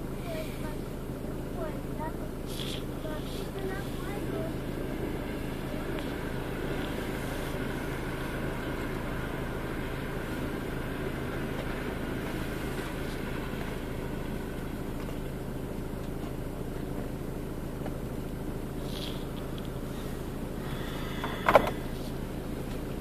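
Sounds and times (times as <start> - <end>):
vehicle rumble inside car: 0.0 - 23.0
electric train passing: 3.0 - 17.7.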